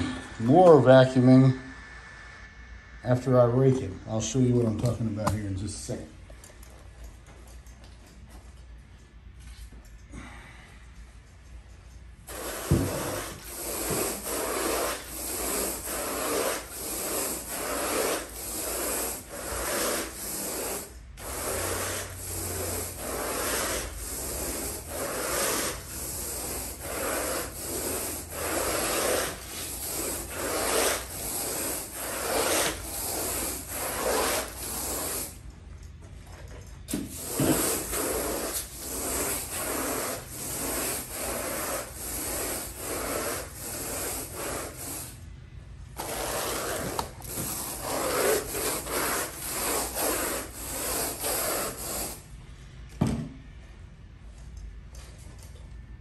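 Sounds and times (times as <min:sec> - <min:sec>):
carpet rake rasping through carpet: 0:12.3 - 0:35.4, 0:37.0 - 0:45.2, 0:46.0 - 0:52.2.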